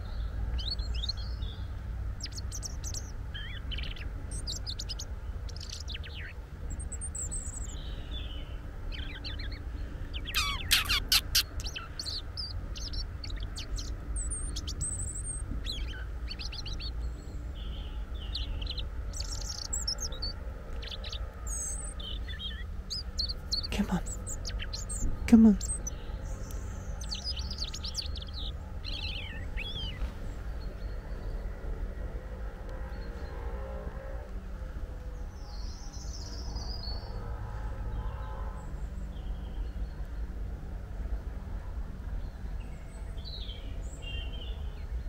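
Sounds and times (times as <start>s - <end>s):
robin chirping and twittering: 0.0s - 31.2s
steady low rumble: 0.0s - 45.0s.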